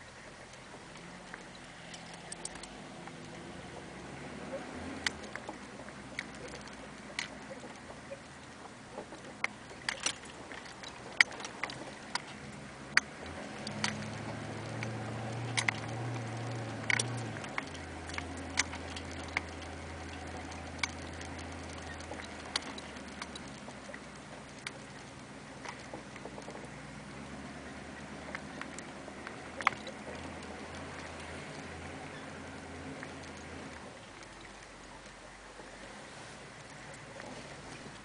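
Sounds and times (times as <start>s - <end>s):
sharp ticks and taps: 0.0s - 3.9s, 5.0s - 26.8s
low engine drone: 0.0s - 38.0s.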